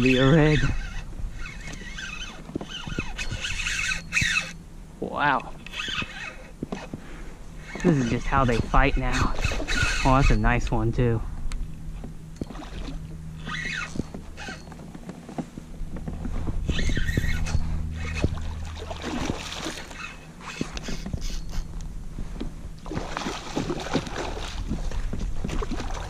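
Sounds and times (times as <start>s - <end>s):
fishing reel clicks: 0.0s - 4.6s, 5.4s - 6.5s, 7.6s - 10.5s, 13.4s - 14.7s
fish thrashing and splashing: 16.7s - 21.6s, 22.8s - 26.0s.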